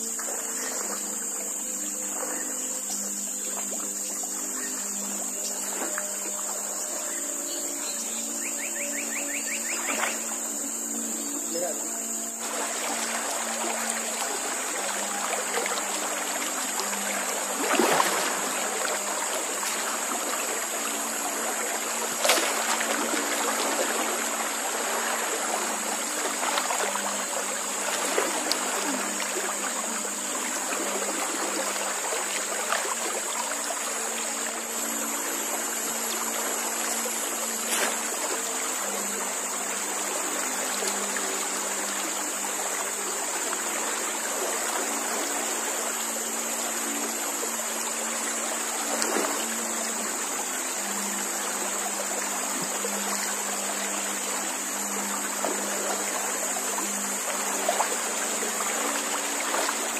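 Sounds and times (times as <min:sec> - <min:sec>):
river water rushing: 0:00.0 - 0:59.9
sharp splashes or knocks: 0:22.2 - 0:23.0.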